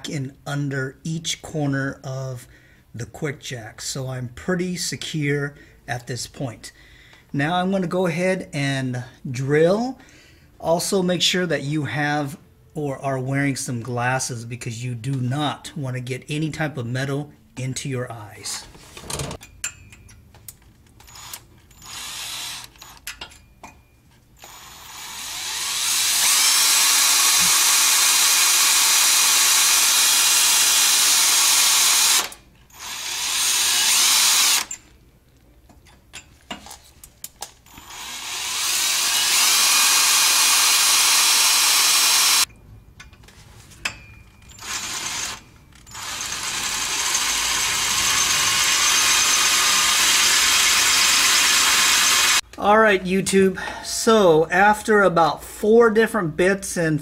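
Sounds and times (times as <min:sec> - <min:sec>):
cordless drill boring into metal: 0:21.0 - 0:23.0, 0:24.4 - 0:34.8, 0:37.7 - 0:42.5, 0:44.5 - 0:52.4.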